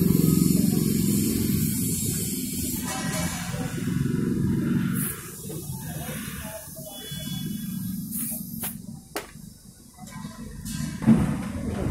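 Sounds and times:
air hose hissing: 0.0 - 8.9.

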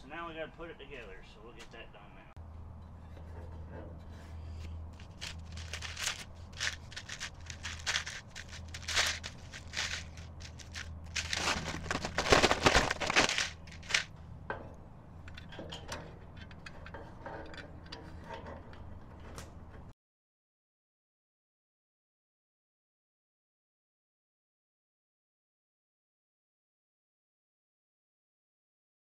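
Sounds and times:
low hum: 2.4 - 19.8
packing material crumpling: 5.0 - 14.1.

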